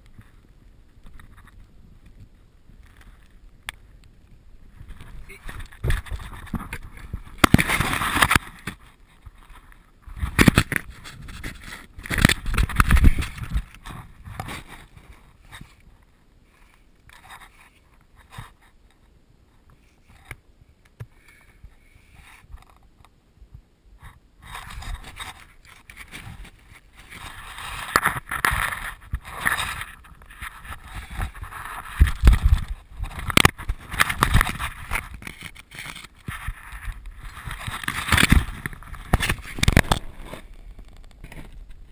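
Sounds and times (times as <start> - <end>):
clothing scraping against rock: 4.7 - 15.9, 24.4 - 41.7.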